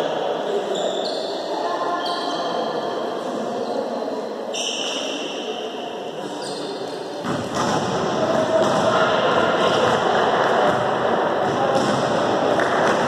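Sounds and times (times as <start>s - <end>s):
ball bouncing: 7.2s - 13.0s.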